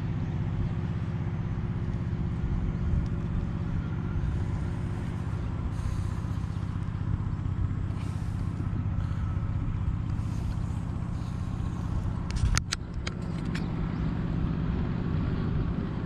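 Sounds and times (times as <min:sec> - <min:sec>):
low motor hum: 0:00.0 - 0:16.0
sharp clicks: 0:12.2 - 0:13.7.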